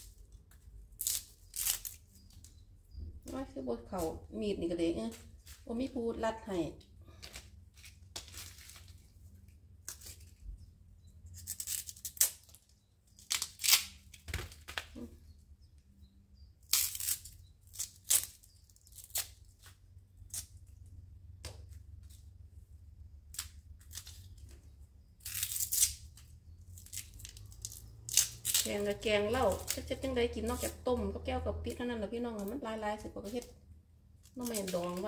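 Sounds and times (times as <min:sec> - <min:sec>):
bamboo husks ripping: 0:00.0 - 0:02.6, 0:07.1 - 0:10.5, 0:11.3 - 0:15.2, 0:16.6 - 0:20.8, 0:23.2 - 0:31.0, 0:34.2 - 0:35.0.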